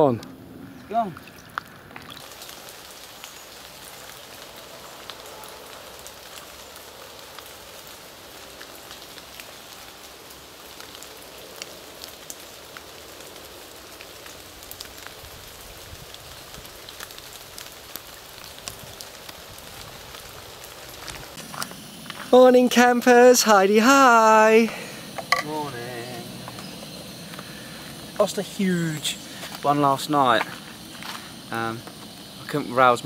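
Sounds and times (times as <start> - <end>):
light rain pattering: 0.0 - 33.0.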